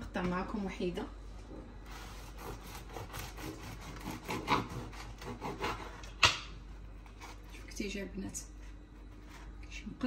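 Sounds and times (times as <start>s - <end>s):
knife sawing through crusty bread: 1.9s - 6.0s, 6.9s - 7.7s.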